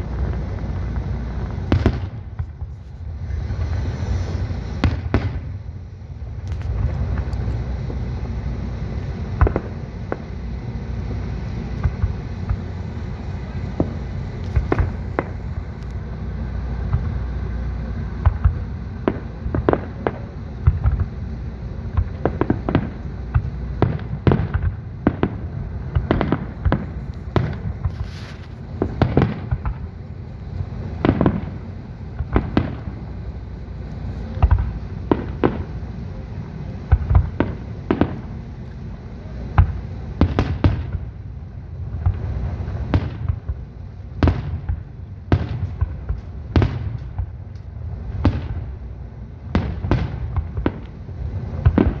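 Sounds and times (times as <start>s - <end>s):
firework bursts and bangs: 0.0s - 52.0s
low rumble: 0.0s - 52.0s.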